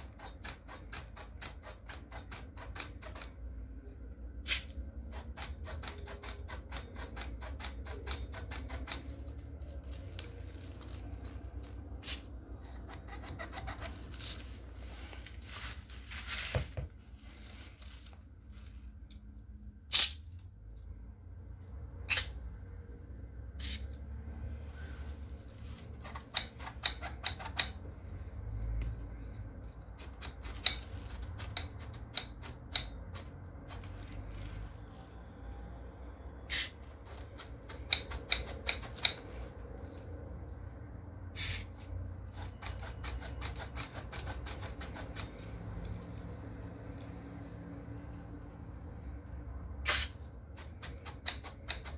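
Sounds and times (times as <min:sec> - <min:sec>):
short bursts of hiss: 0:41.4 - 0:41.7, 0:49.8 - 0:50.2.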